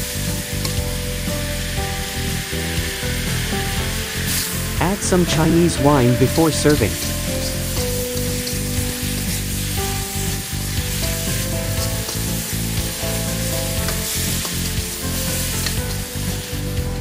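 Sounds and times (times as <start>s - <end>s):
meat sizzling in a wok: 0.0s - 17.0s
metal spatula scraping a wok: 7.0s - 12.7s.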